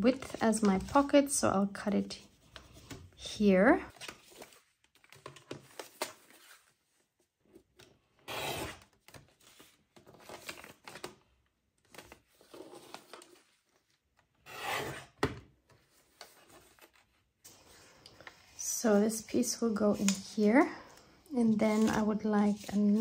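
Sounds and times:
paper rustling: 15.7 - 19.2, 21.4 - 23.0.

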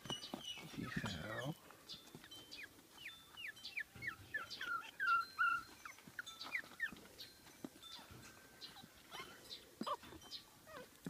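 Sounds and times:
puppies whimpering: 0.6 - 1.6, 2.2 - 7.3, 7.9 - 11.0.

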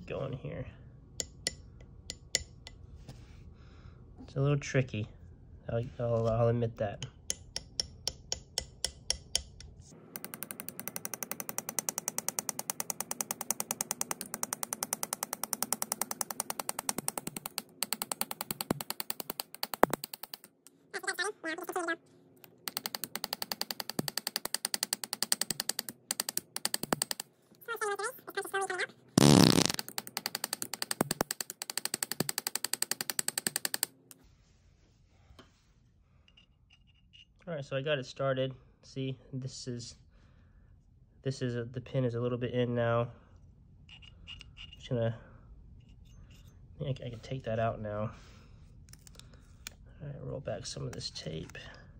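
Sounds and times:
hammer tapping a metal punch: 1.2 - 2.8, 7.0 - 20.4.

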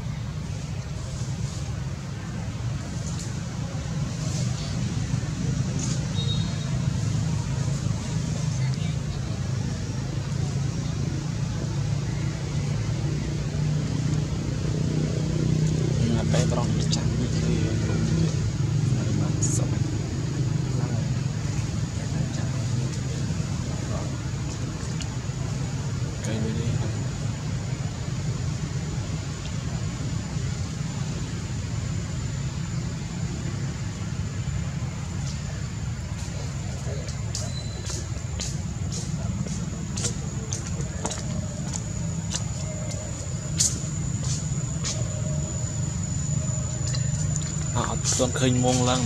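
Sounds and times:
low engine hum: 0.0 - 49.0
thin high whine: 29.0 - 49.0.

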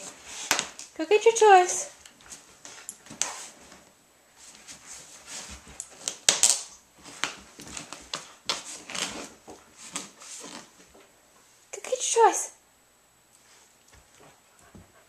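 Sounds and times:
dog rustling through toys: 0.0 - 11.7.

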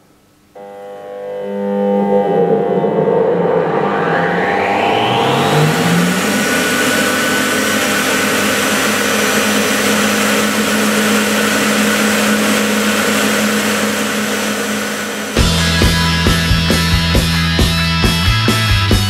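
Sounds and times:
motor hum: 0.5 - 16.7.

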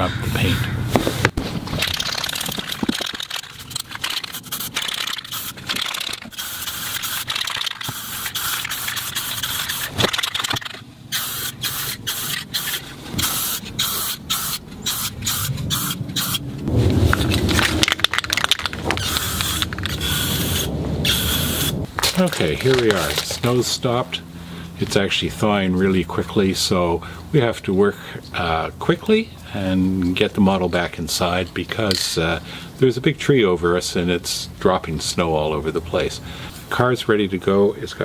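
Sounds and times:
spray paint can hissing: 1.8 - 16.4, 17.1 - 21.9.

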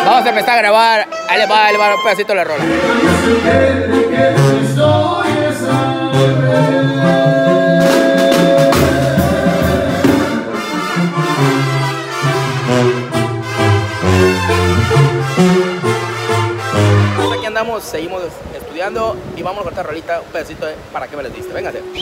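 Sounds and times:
brass band playing: 0.0 - 18.4
tuba bass line: 1.1 - 18.0
man singing: 2.6 - 10.4
drum kit: 7.4 - 10.5.

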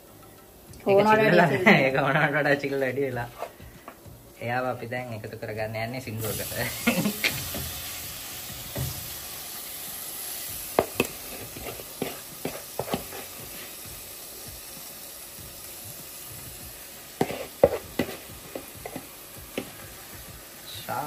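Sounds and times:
chicken sizzling in a pan: 0.0 - 21.0
spoon clacking on bowl and pan: 10.6 - 13.6, 17.2 - 19.9.

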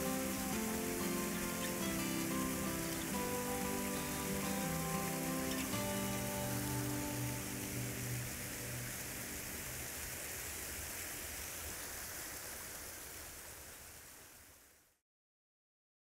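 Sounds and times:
background music: 0.0 - 9.6
creek water flowing: 0.0 - 14.9.

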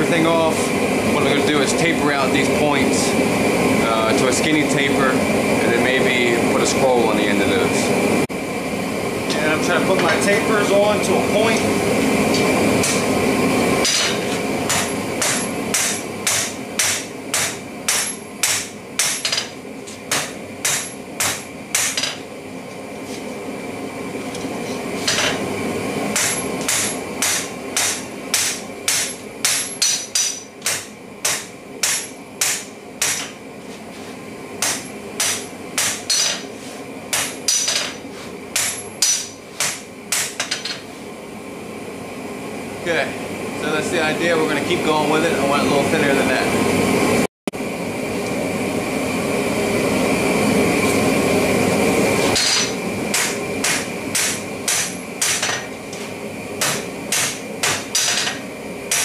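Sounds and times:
hammer striking hot steel on anvil: 13.8 - 22.3, 25.0 - 25.4, 26.1 - 33.4, 34.6 - 36.5, 37.1 - 40.9, 52.2 - 55.7, 56.6 - 59.0.

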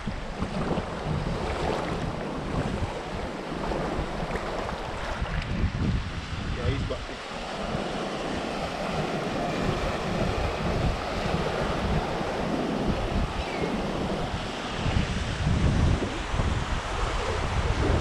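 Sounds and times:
wind buffeting microphone: 0.0 - 18.0
person wading through water: 0.1 - 5.6.

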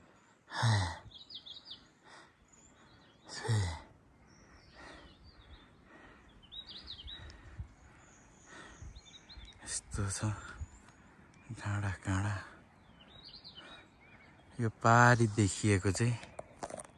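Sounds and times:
person breathing hard: 0.0 - 9.4
heavy voiced sighs: 0.5 - 1.1, 3.3 - 3.9
small bird chirping: 1.0 - 16.9.

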